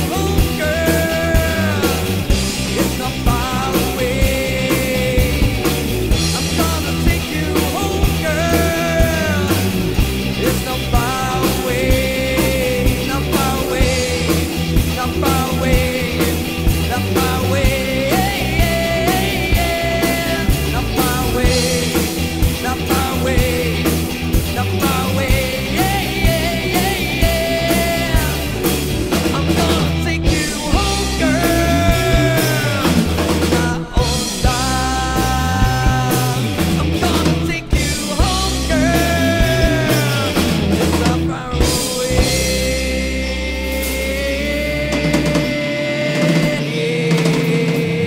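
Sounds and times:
bass guitar: 0.0s - 48.0s
drum kit: 0.0s - 48.0s
electric guitars: 0.0s - 48.0s.

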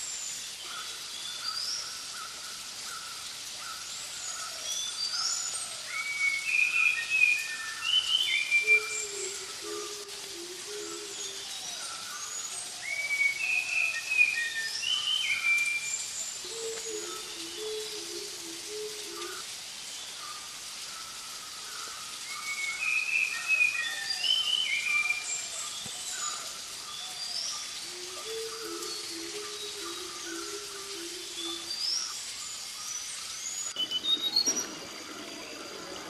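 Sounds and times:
steady hiss: 0.0s - 36.0s
birds chirping and whistling: 4.6s - 10.0s, 10.8s - 18.3s, 22.3s - 36.0s.

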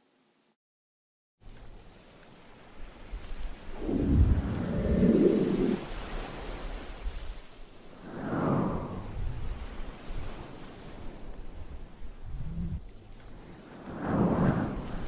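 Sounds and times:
sea waves hissing: 3.7s - 7.1s, 7.8s - 12.8s.

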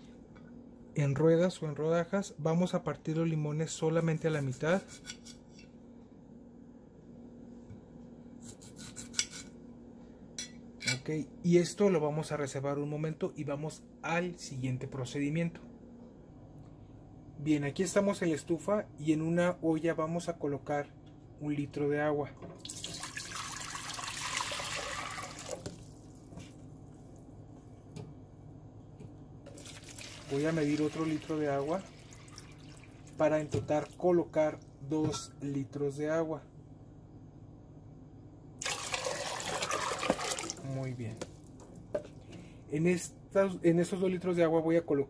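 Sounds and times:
faint steady hum: 0.0s - 45.0s
knife cutting limes: 8.4s - 9.6s
water pouring into metal pot: 22.6s - 25.7s, 29.5s - 33.2s, 38.6s - 40.6s.

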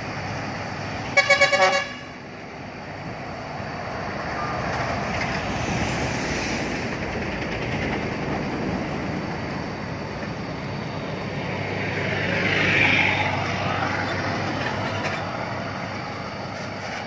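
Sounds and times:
road traffic noise: 0.0s - 17.0s
truck passing: 0.0s - 17.0s
vehicle horn short toots: 1.2s - 2.1s.

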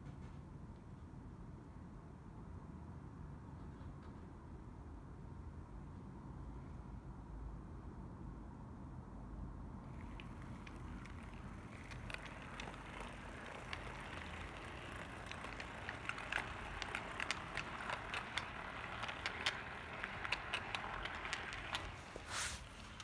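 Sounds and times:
wheels clicking on rails: 9.8s - 23.0s
model train gears whirring: 9.9s - 23.0s.

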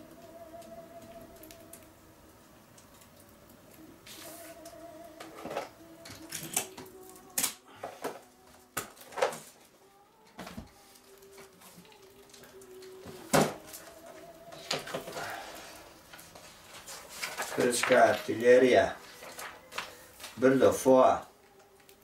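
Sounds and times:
pages turning: 14.6s - 20.7s
paper sheets shuffling: 14.6s - 20.8s.

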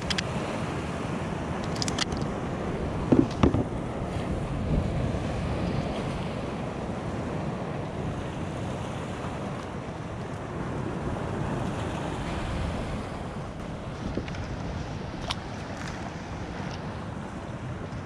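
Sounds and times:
wind rumble on microphone: 0.0s - 18.0s
water lapping against hull: 2.3s - 18.0s.

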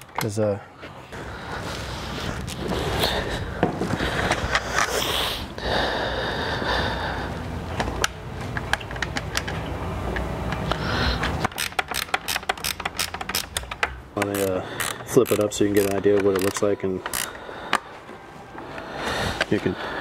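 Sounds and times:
steady background rumble: 1.0s - 15.8s.

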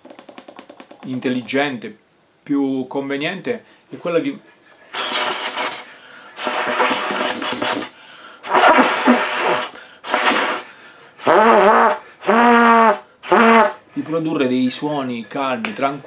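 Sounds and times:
soft low trumpet notes: 8.4s - 10.6s, 11.2s - 13.8s.

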